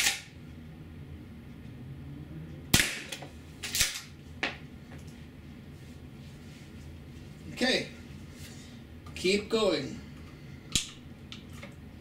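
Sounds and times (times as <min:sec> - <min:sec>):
airsoft shotgun shot crack: 0:02.7 - 0:03.2.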